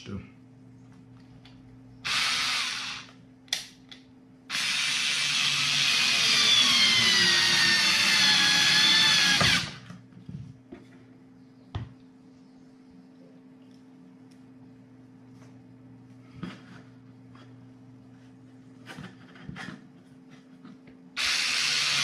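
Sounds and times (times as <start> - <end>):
cordless screwdriver whine: 2.1 - 3.1, 4.5 - 9.8, 21.2 - 22.0.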